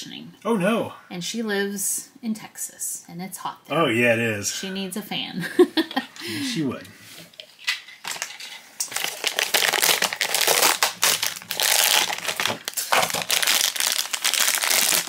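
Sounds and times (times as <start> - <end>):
foil wrapper crinkling: 7.7 - 15.0.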